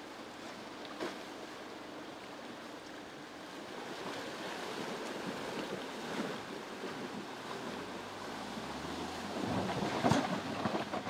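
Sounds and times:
water splashing around wheels: 3.7s - 11.0s.

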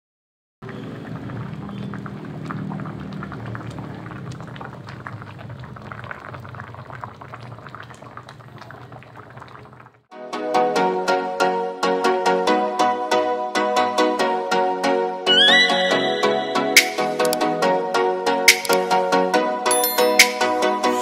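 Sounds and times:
stew bubbling: 0.6s - 10.1s
music: 10.1s - 21.0s.

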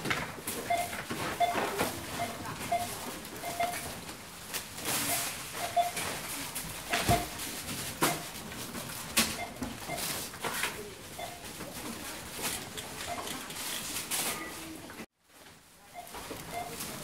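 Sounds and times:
knocks and rustling of goods: 0.0s - 17.0s
short scanner beeps: 0.7s - 3.8s, 5.0s - 6.0s, 11.2s - 11.4s, 15.9s - 16.8s.

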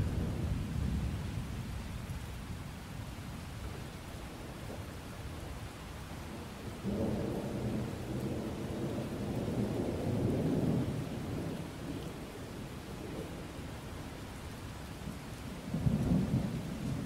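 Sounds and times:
thunder rumbling: 0.0s - 1.6s, 15.6s - 17.0s
steady rain: 0.0s - 17.0s.

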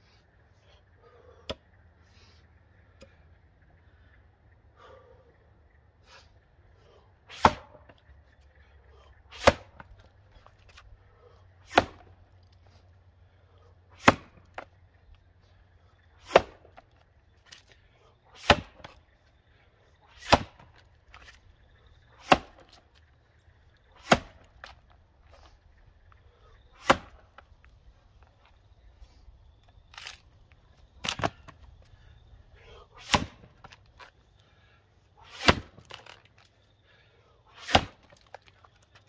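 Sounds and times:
axe chopping log: 7.3s - 8.0s, 9.3s - 10.0s, 11.6s - 12.2s, 13.9s - 14.7s, 16.2s - 16.8s, 18.4s - 19.0s, 20.1s - 21.4s, 22.2s - 22.8s, 24.0s - 24.8s, 26.8s - 27.4s, 29.9s - 30.2s, 31.0s - 31.6s, 33.0s - 33.8s, 35.2s - 36.2s, 37.6s - 38.4s.

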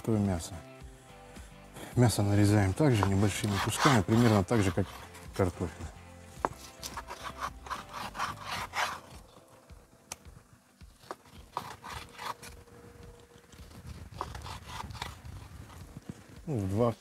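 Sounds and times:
knife sawing through meat: 2.7s - 5.6s, 6.6s - 9.2s, 11.3s - 12.6s, 13.9s - 15.2s.

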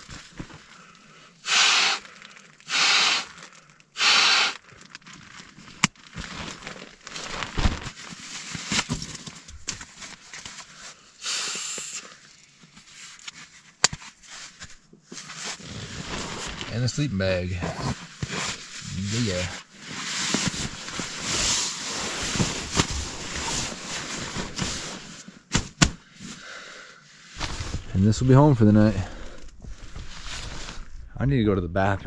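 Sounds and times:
nylon sacks rustling: 0.0s - 10.8s, 14.2s - 26.4s, 27.3s - 31.1s
breaths blown into pillow: 1.4s - 4.6s, 11.2s - 12.0s, 27.3s - 27.9s.

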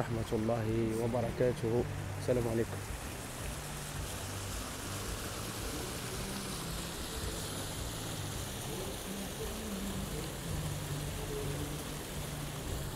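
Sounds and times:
fountain water splashing: 0.0s - 12.9s.

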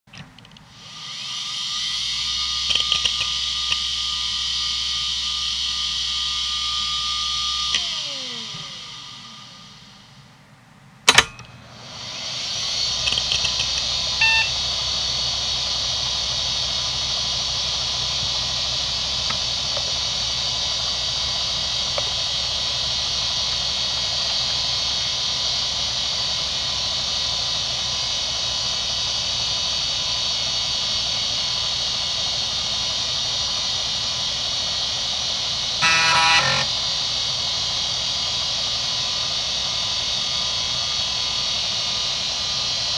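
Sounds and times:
hard drive spinning up: 0.2s - 42.9s
hard drive whirring hum: 0.2s - 42.9s
short beep: 14.2s - 14.5s.

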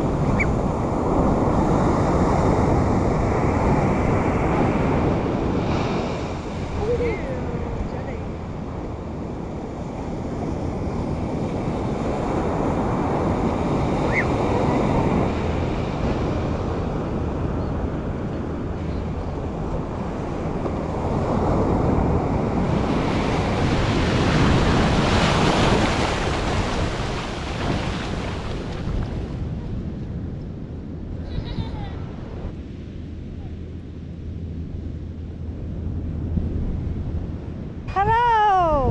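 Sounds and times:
ocean surf breaking on beach: 0.0s - 30.2s
wind buffeting microphone: 0.0s - 38.9s.

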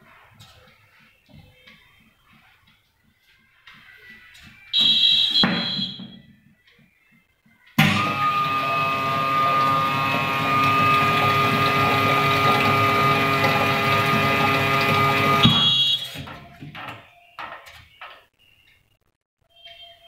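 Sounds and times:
short high beep: 4.8s - 6.1s, 15.4s - 16.1s
pump whining: 7.8s - 16.4s.

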